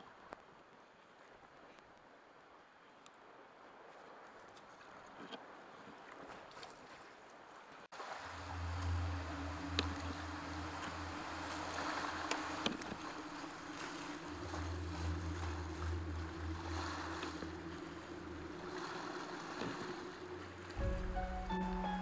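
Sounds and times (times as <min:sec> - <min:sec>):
river water rushing: 0:07.9 - 0:22.0
low hum: 0:08.0 - 0:22.0.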